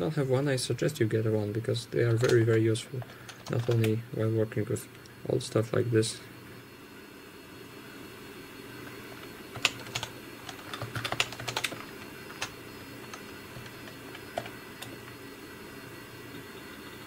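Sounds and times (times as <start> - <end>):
steady background hum: 0.0 - 17.0
computer keyboard typing: 2.2 - 4.0, 9.5 - 15.0.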